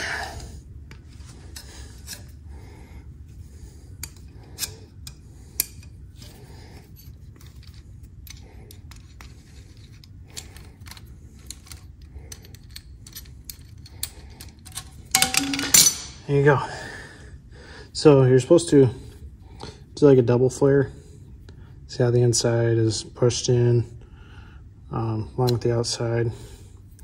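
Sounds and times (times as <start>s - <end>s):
steady low hum: 0.0s - 27.0s
metal tool clicking and creaking: 4.0s - 6.4s, 7.0s - 16.2s.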